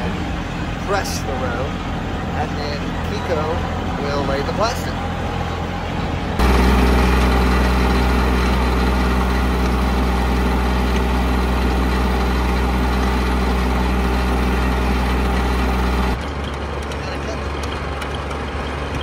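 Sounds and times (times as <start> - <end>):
tractor engine droning: 0.0 - 19.0.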